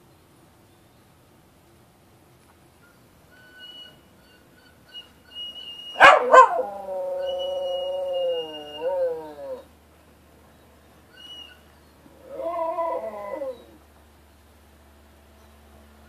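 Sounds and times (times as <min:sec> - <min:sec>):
dog howling: 0:05.9 - 0:09.7, 0:12.0 - 0:13.8.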